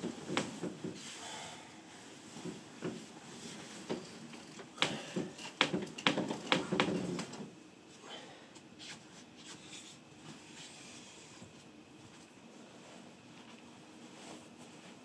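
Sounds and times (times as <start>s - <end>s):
bedclothes rustling: 0.0s - 1.2s, 1.8s - 7.3s, 8.8s - 15.0s
sharp taps and knocks: 4.8s - 7.3s.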